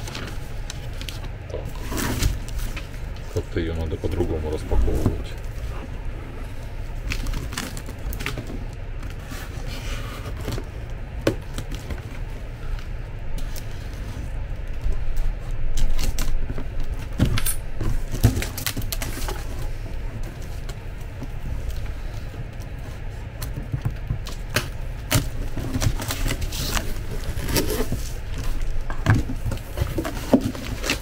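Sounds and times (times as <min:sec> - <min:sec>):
steady low hum: 0:00.0 - 0:31.0
plastic film crinkling: 0:06.6 - 0:09.6.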